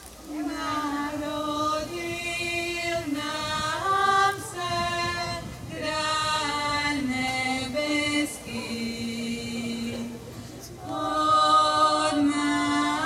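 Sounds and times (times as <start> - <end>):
women singing unaccompanied: 0.2 - 13.0
singers breathing: 10.2 - 10.8.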